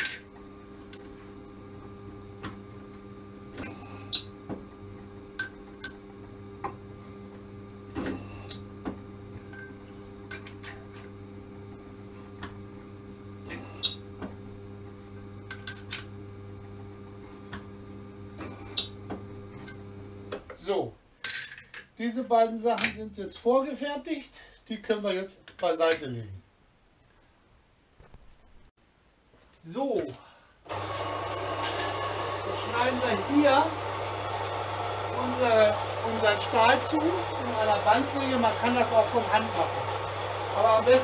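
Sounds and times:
machine hum: 0.0s - 20.5s, 30.6s - 41.0s.

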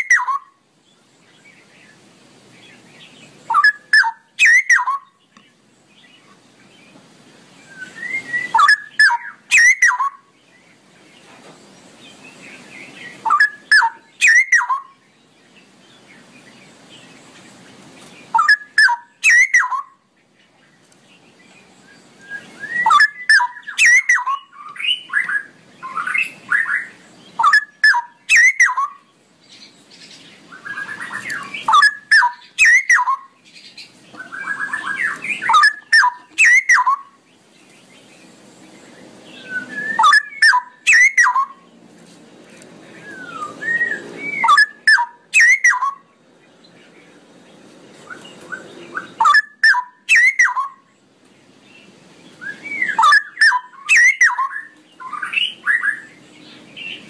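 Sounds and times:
bird warbling: 0.0s - 0.6s, 3.4s - 5.2s, 7.7s - 10.3s, 13.0s - 15.0s, 18.2s - 20.0s, 22.4s - 29.1s, 30.4s - 37.2s, 39.4s - 41.7s, 43.0s - 46.1s, 48.0s - 50.9s, 52.4s - 56.2s
bird whistling song: 0.0s - 0.6s, 2.7s - 5.5s, 7.6s - 10.3s, 12.1s - 15.1s, 18.2s - 20.1s, 21.6s - 37.2s, 39.0s - 41.7s, 42.9s - 46.1s, 48.0s - 50.9s, 51.8s - 57.0s.

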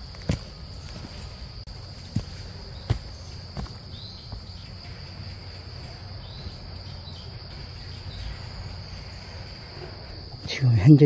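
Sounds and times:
footsteps on log steps: 0.0s - 4.6s
insects trilling: 0.0s - 11.0s.

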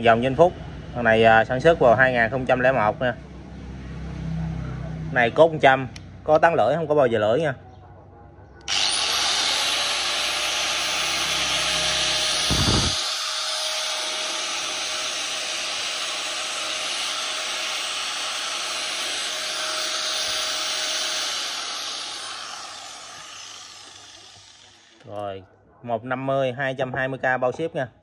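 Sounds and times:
angle grinder whining: 8.7s - 25.1s.

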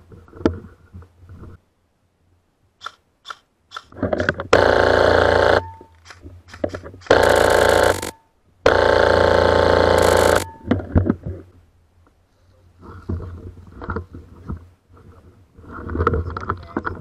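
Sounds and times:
airsoft rifles firing full-auto: 4.5s - 5.8s, 7.1s - 10.6s.

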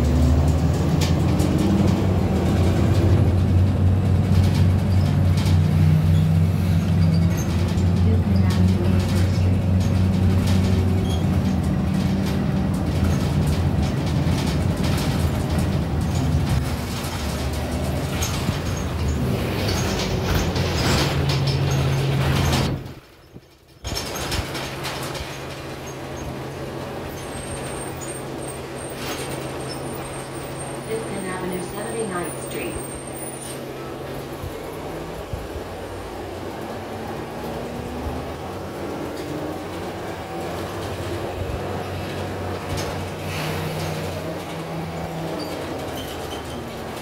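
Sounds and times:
bus engine drone: 0.0s - 47.0s
road noise: 0.0s - 47.0s.

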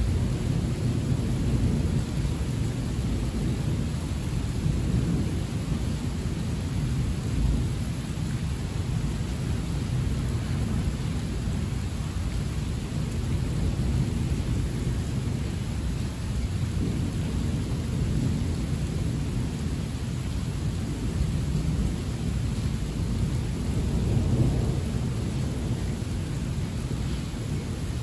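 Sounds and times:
heavy rain: 0.0s - 28.0s
rolling thunder: 22.9s - 28.0s.

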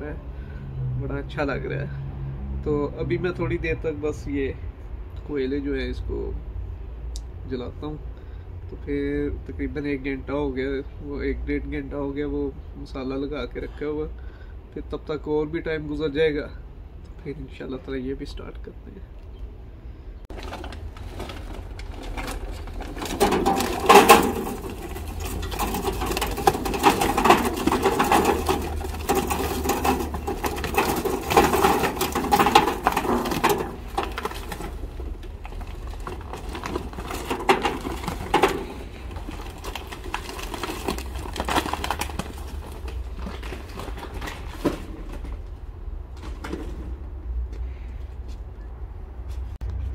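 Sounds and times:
charcoal clattering into metal grill: 20.3s - 45.4s.

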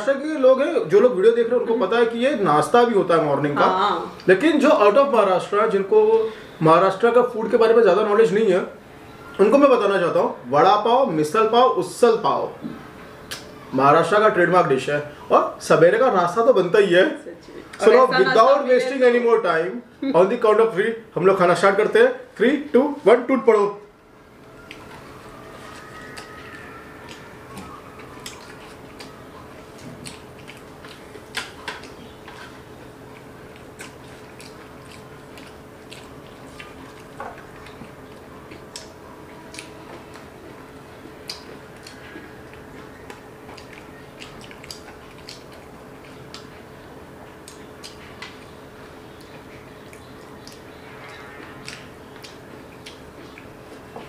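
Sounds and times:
faint hum: 0.0s - 54.0s
people chewing: 24.4s - 54.0s.

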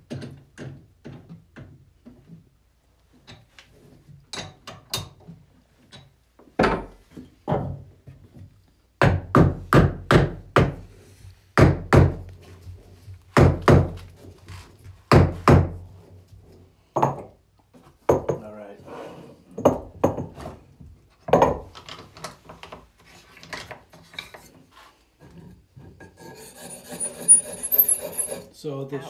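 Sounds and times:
hammer knocking wood: 9.0s - 10.8s, 11.6s - 12.2s, 13.4s - 14.0s.

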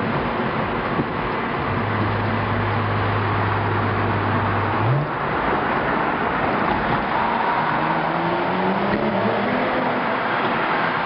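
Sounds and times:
car exhaust drone: 0.0s - 11.0s
road noise: 0.0s - 11.0s.

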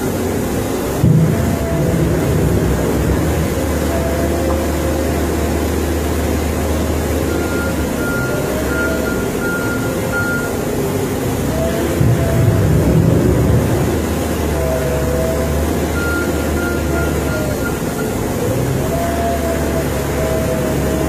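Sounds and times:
diesel engine running: 0.0s - 21.0s
reversing alarm beeps: 3.7s - 10.8s, 14.7s - 21.0s.

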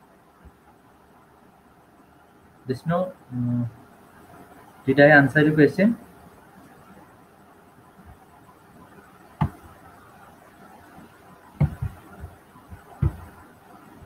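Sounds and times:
faint background hiss: 0.0s - 14.0s
short knocks: 9.4s - 9.7s, 11.6s - 13.4s.

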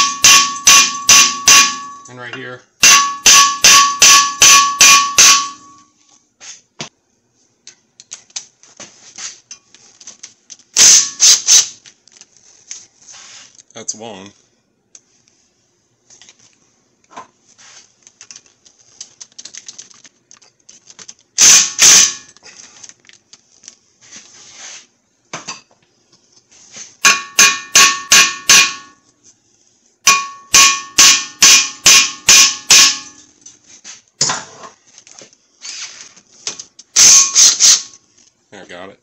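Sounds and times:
hammer striking metal rotor: 0.0s - 2.2s, 2.8s - 5.8s, 27.0s - 29.0s, 30.0s - 33.3s, 37.0s - 37.9s.

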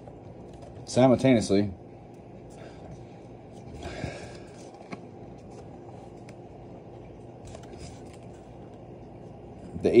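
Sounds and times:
low room hum: 0.0s - 10.0s
paper cards rustling: 7.4s - 8.6s.

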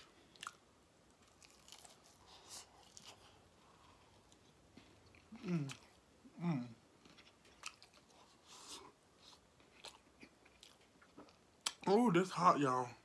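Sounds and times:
wet chewing and lip smacks: 7.0s - 11.9s.

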